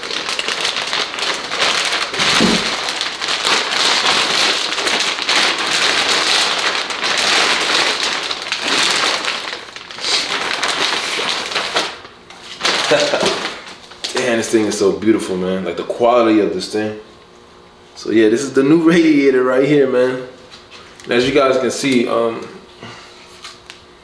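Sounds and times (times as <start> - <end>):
plastic wrap crinkling: 0.0 - 14.8.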